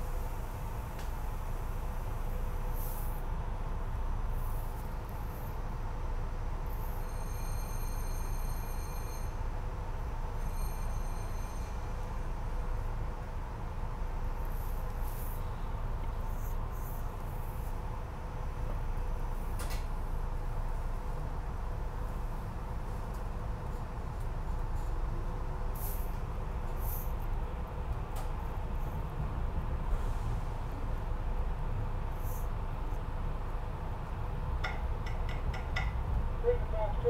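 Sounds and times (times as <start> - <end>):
train car rumble and hum: 0.0 - 37.0.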